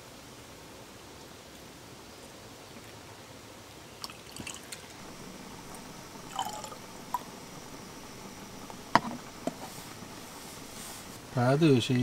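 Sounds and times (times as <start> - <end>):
juice dripping into glass bottle: 4.0 - 10.6
wooden cups knocking: 5.0 - 10.2.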